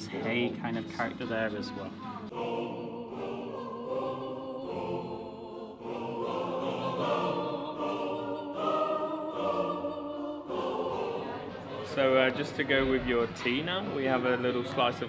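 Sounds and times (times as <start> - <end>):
choir singing held chords: 2.2 - 13.1.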